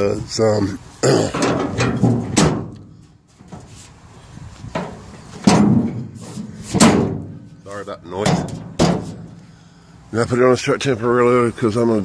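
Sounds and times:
loud metal bangs: 0:01.3 - 0:03.0, 0:04.8 - 0:07.5, 0:08.1 - 0:09.4.

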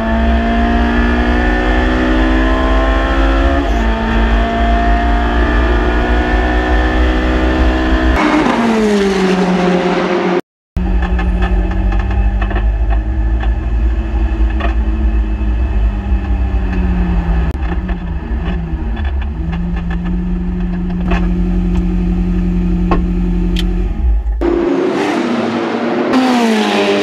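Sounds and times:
car engine idling: 0:10.8 - 0:24.8.

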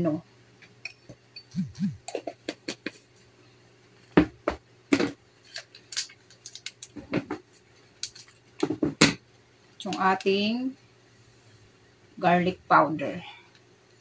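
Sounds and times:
items clicking and knocking on table: 0:04.2 - 0:09.2.

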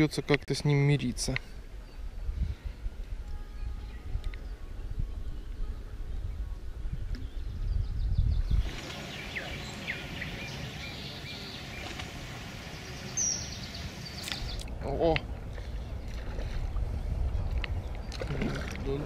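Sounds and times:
bird chirping: 0:07.2 - 0:15.1.

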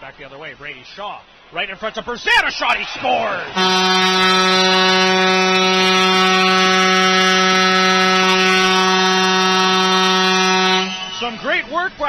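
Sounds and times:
arena goal horn: 0:03.5 - 0:11.4.

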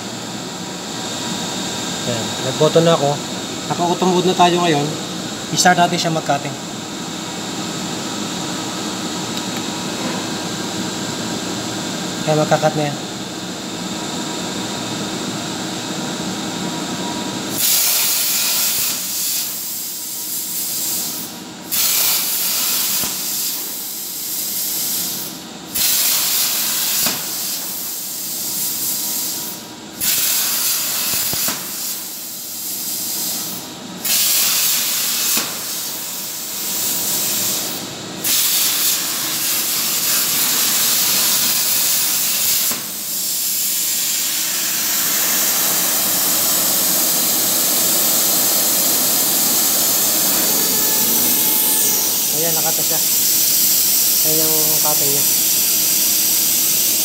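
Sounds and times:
plasma arc hissing: 0:17.5 - 0:57.0
machine hum: 0:43.9 - 0:55.7.

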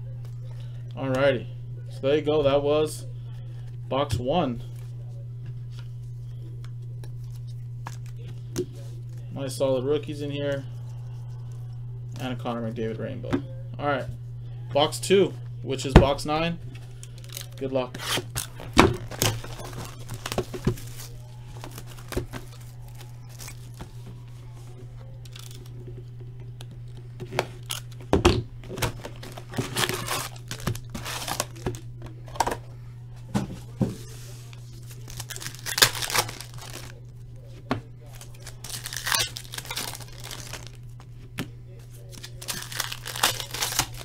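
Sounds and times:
steady low hum: 0:00.0 - 0:44.0
plastic wrap tearing and crinkling: 0:17.0 - 0:24.0, 0:25.2 - 0:25.7, 0:27.6 - 0:28.0, 0:28.7 - 0:31.8, 0:34.6 - 0:37.0, 0:38.0 - 0:41.0, 0:42.0 - 0:44.0.

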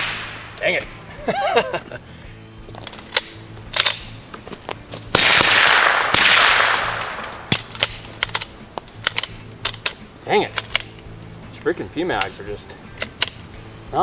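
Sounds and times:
suppressed pistol shots: 0:00.0 - 0:00.6, 0:05.1 - 0:10.9
rushing echo: 0:00.0 - 0:00.8, 0:05.1 - 0:07.6.

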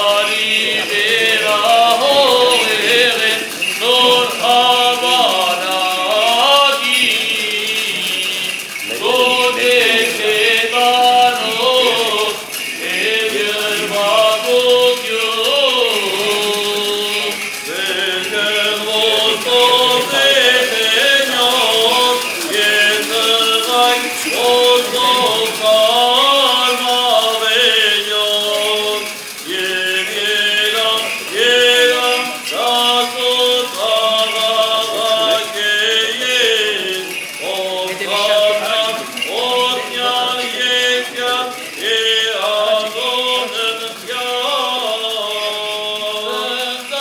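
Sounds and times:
voices chanting a slow hymn: 0:00.0 - 0:47.0.

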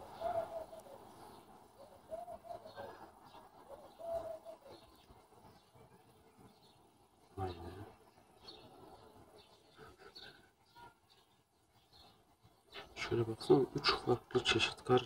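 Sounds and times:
dove cooing: 0:00.0 - 0:05.6.

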